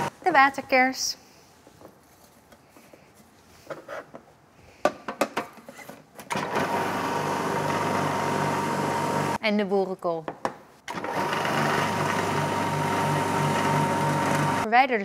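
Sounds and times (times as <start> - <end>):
juicer motor running: 6.3 - 9.4, 10.9 - 14.6.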